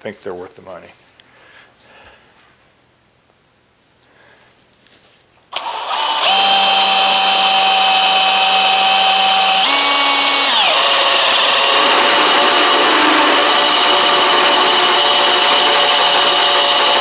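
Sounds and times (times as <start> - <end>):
cordless drill drilling into metal: 5.5 - 17.0.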